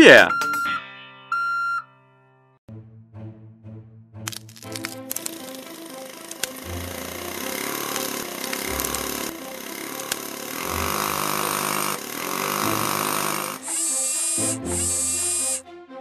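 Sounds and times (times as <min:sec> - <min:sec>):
buzzing grinding tool: 0:05.2 - 0:15.6
cartoon engine running: 0:05.2 - 0:15.6.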